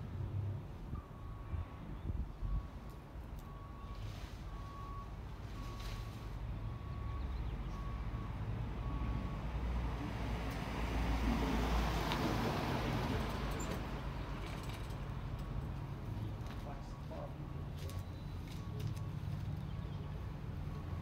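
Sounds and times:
van driving past: 6.8s - 14.6s.

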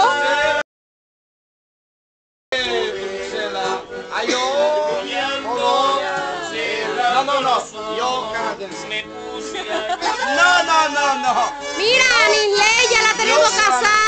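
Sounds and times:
accordion: 0.0s - 0.6s, 2.6s - 14.0s
man singing: 0.0s - 0.6s, 2.6s - 11.6s
acoustic guitar: 2.6s - 14.0s.

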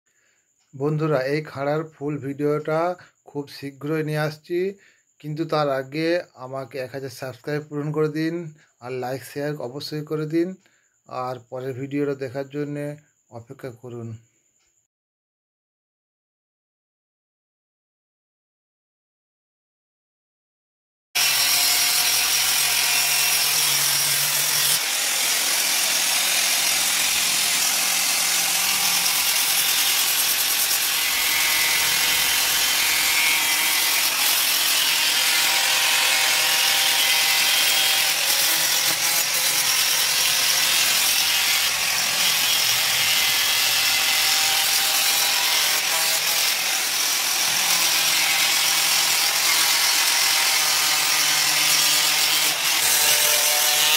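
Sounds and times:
angle grinder grinding blade: 21.2s - 53.9s.

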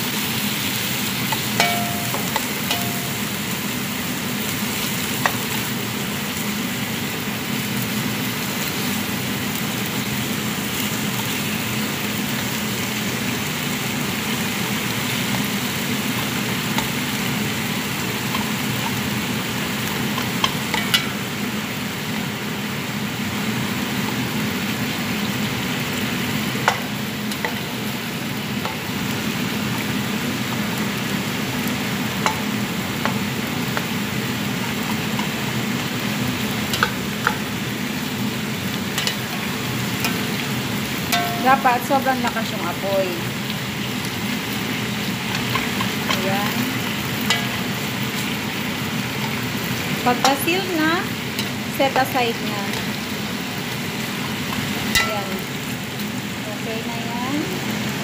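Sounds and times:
chicken sizzling in hot oil: 0.0s - 58.0s
spatula knocking against pan: 1.3s - 3.2s.

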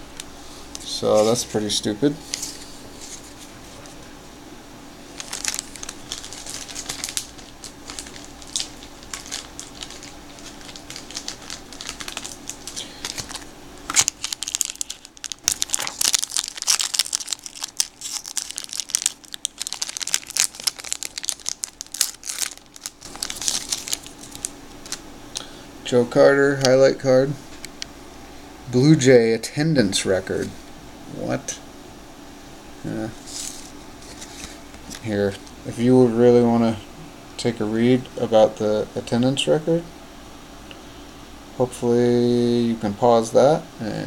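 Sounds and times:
foil wrapper crinkling: 5.1s - 25.5s, 33.2s - 35.6s
cards sliding out of wrapper: 5.2s - 18.6s.

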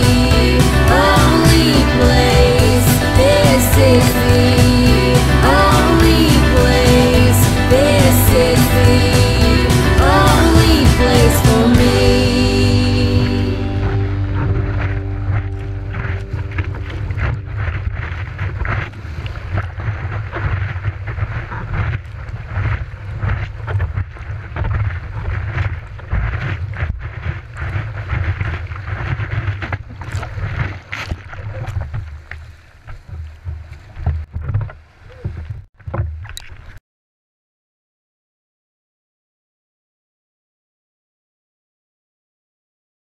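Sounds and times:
whitewater rushing and splashing: 0.0s - 21.4s.

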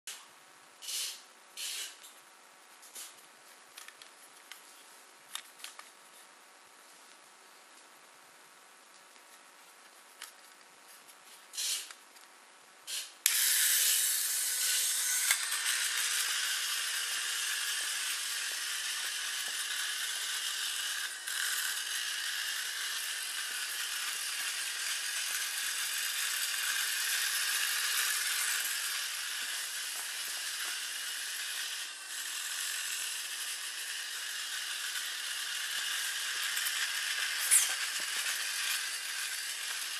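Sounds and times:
toy car motor whirring: 0.8s - 2.0s, 11.5s - 12.0s, 12.9s - 39.9s.

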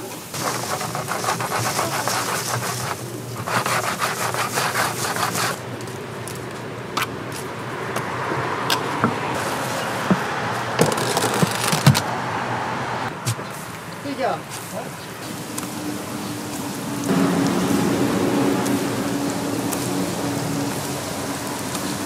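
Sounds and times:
oil crackling and sizzling: 0.0s - 6.6s, 9.3s - 11.8s, 13.4s - 22.0s
street noise: 0.0s - 22.0s.

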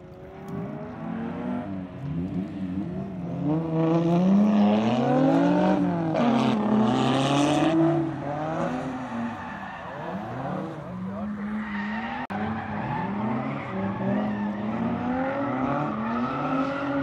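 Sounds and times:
car engine revving hard: 0.4s - 9.2s.

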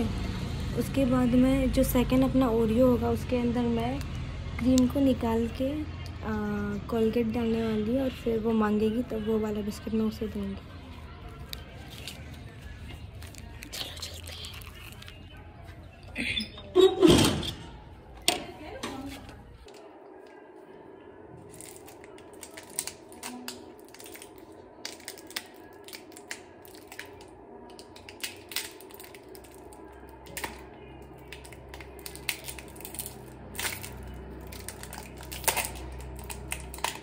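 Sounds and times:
plastic wrapper crinkling: 11.3s - 15.4s, 21.4s - 37.0s.

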